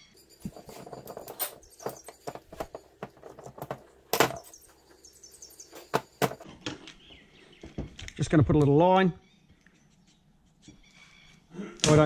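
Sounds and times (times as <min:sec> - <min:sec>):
small metal parts clinking: 0:00.0 - 0:06.5
faint birds chirping: 0:00.0 - 0:11.8.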